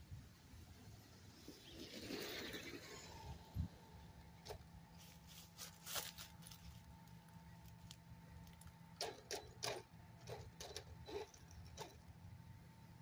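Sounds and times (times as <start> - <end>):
toy truck electric motor whining: 9.1 - 12.0.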